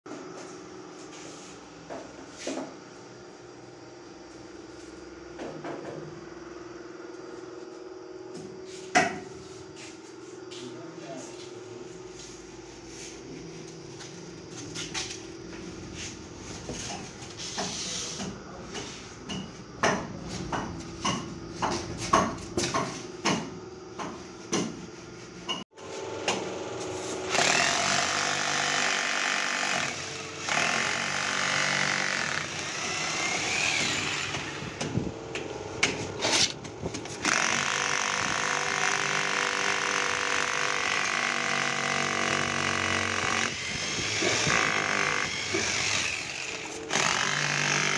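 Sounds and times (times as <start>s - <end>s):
electric drill boring: 27.1s - 35.0s, 36.4s - 47.9s.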